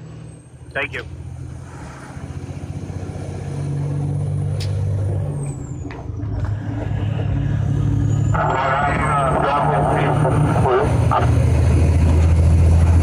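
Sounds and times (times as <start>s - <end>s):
diesel truck engine running: 0.0s - 13.0s.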